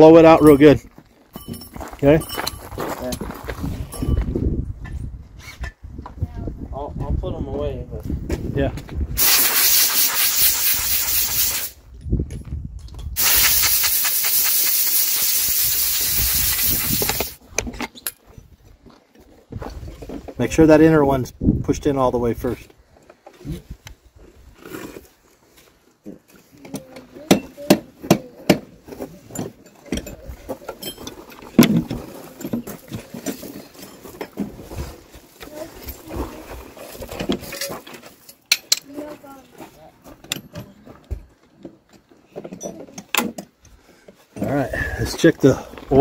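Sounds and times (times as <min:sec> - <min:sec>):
compressed air blow gun hissing: 0:09.2 - 0:11.8, 0:13.2 - 0:17.4.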